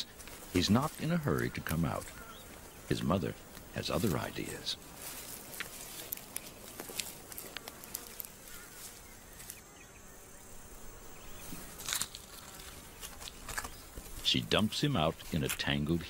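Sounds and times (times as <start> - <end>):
rustling: 0.0 - 9.7, 10.9 - 16.0
insects buzzing: 0.0 - 16.0
small clicks: 5.6 - 8.4.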